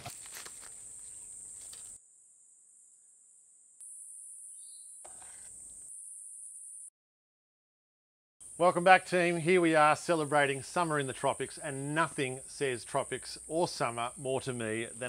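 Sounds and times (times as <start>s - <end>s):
rustling noise: 0.0s - 2.0s
insects chirring: 0.0s - 6.9s, 8.4s - 15.0s.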